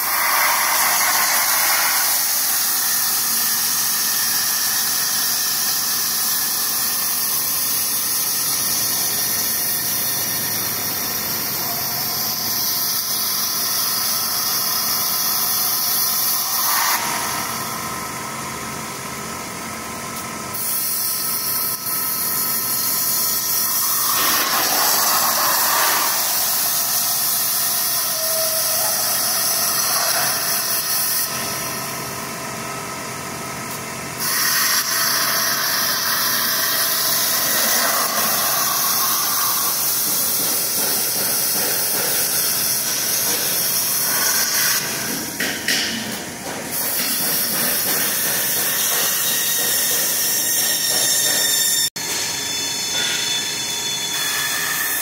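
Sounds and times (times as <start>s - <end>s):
high-pressure water jet hissing: 0.0s - 17.6s, 20.6s - 31.4s, 34.2s - 45.0s.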